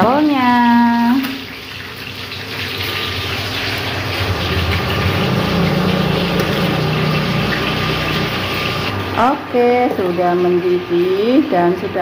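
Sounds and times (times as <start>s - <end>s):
water boiling in a saucepan: 0.0s - 12.0s
low hum: 3.4s - 9.2s.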